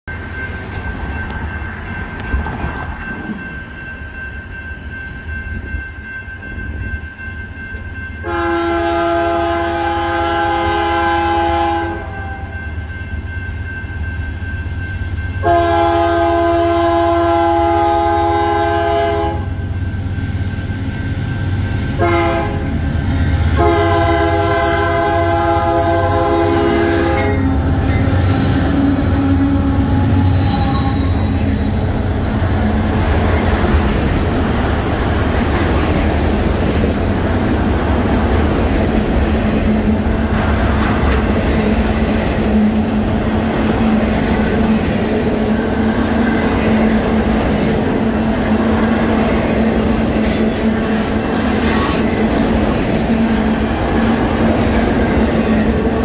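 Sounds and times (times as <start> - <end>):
locomotive rumbling past: 0.1 - 56.0
locomotive air horn blasts: 8.2 - 12.5, 15.4 - 19.6, 22.0 - 22.8, 23.5 - 31.7.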